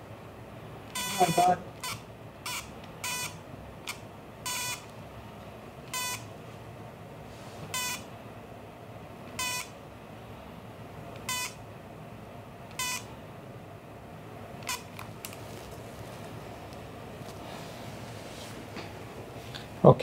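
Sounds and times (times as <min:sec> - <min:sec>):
short electronic beeps: 0:01.0 - 0:03.4, 0:04.5 - 0:04.8, 0:06.0 - 0:06.2, 0:07.8 - 0:08.0, 0:09.4 - 0:09.7.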